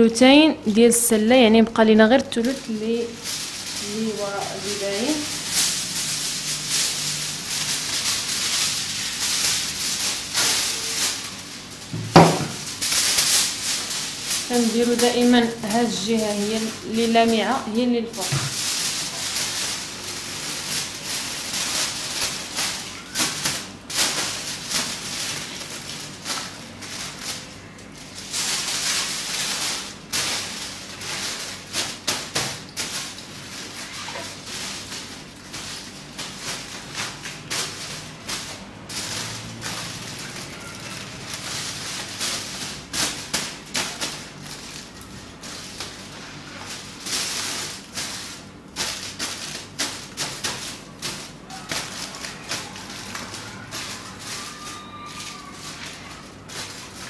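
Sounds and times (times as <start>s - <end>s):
aluminium foil crinkling: 0.0s - 57.0s.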